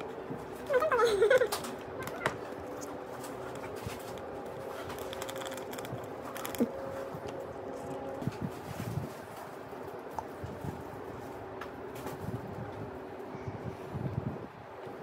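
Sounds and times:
steady background hum: 0:00.0 - 0:15.0
plastic sachet crinkling: 0:04.8 - 0:06.8.

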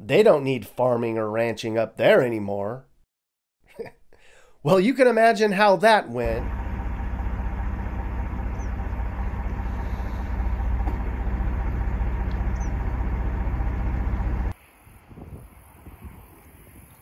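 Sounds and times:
vehicle engine humming: 0:06.2 - 0:14.6
faint high chirps: 0:08.5 - 0:08.8
faint wind noise: 0:14.5 - 0:17.0.

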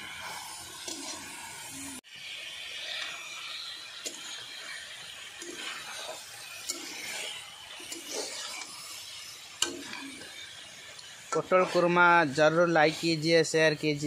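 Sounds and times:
vegetables sizzling in pan: 0:00.0 - 0:14.0
spatula scraping metal pan: 0:02.8 - 0:10.6, 0:11.3 - 0:13.5.

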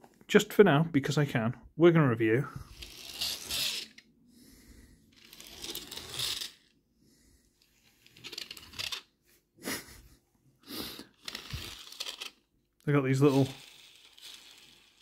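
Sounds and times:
plastic toy wheels rolling: 0:02.5 - 0:04.1, 0:05.0 - 0:06.8, 0:07.6 - 0:09.1, 0:11.0 - 0:15.0.

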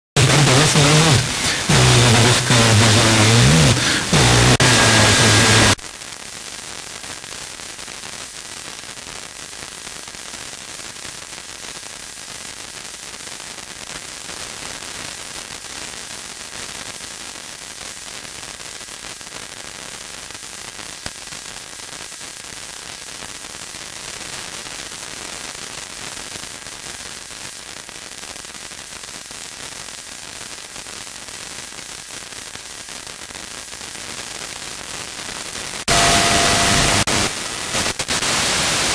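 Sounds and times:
radio static hiss: 0:00.0 - 0:05.8, 0:35.7 - 0:38.9
loud burst of audio: 0:00.2 - 0:05.8, 0:35.8 - 0:38.9.

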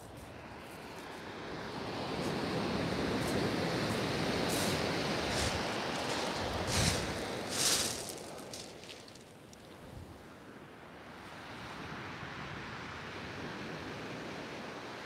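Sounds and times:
surf breaking on shingle beach: 0:01.5 - 0:09.5.

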